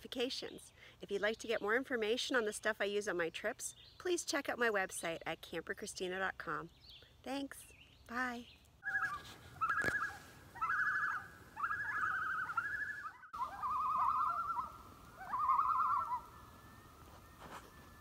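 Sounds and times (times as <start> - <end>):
loon tremolo calls: 8.8 - 18.0.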